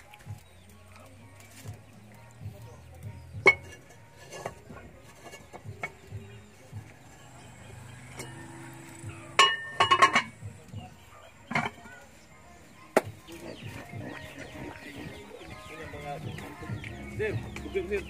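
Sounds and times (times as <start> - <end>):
metal pot lid clinking: 3.4 - 6.0, 9.3 - 10.4.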